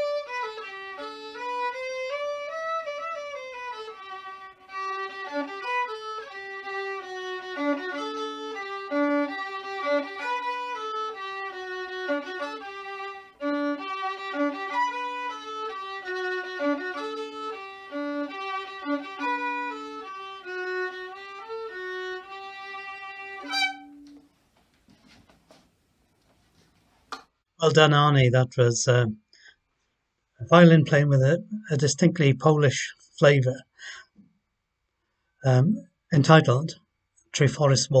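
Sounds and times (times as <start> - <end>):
solo violin waltz: 0.0 - 24.3.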